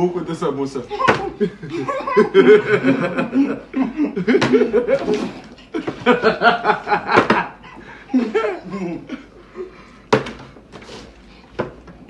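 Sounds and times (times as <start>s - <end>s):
men laughing: 0.8s - 9.7s
plastic bottle hitting table: 7.2s - 7.5s, 10.1s - 10.5s.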